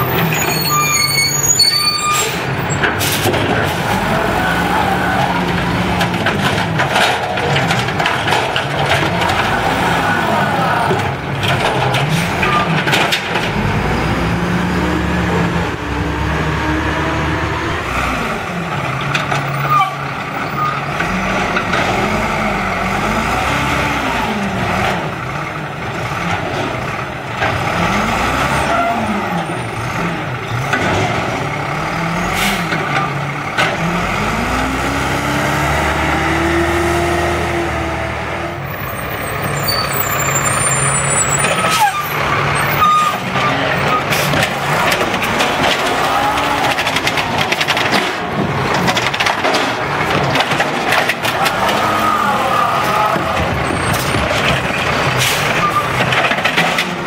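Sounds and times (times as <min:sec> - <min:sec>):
diesel engine revving: 0:00.0 - 0:57.0
cart knocking and clattering: 0:05.2 - 0:09.9, 0:10.7 - 0:13.8, 0:38.9 - 0:57.0.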